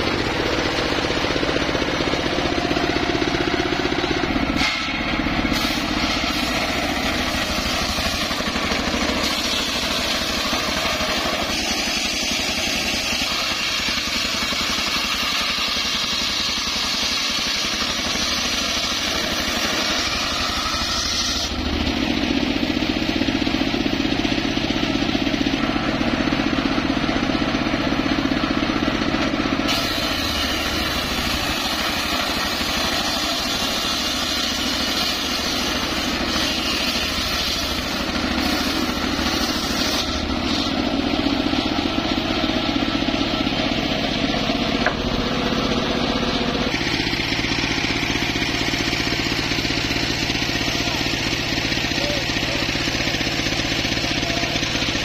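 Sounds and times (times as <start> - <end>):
sawmill engine humming: 0.0 - 55.0
saw blade ripping log: 4.5 - 21.8, 29.7 - 41.6.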